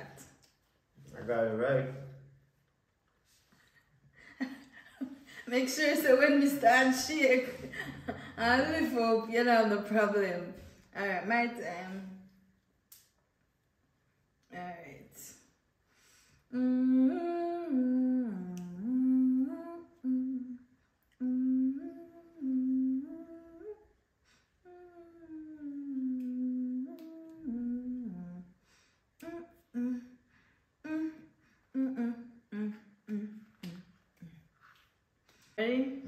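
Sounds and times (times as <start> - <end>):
person humming: 16.5 - 23.9, 24.6 - 28.6, 29.2 - 30.2, 30.8 - 34.4.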